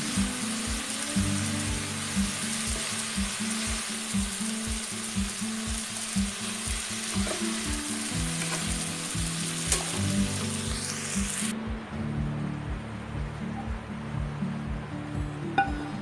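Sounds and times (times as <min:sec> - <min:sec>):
vegetables sizzling in a wok: 0:00.0 - 0:11.6
background music with beat: 0:00.0 - 0:16.0.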